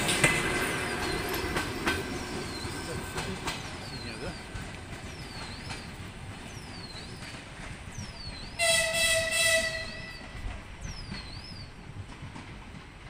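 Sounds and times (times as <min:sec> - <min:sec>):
train rumbling: 0:00.0 - 0:13.0
locomotive horn blast: 0:08.6 - 0:10.4.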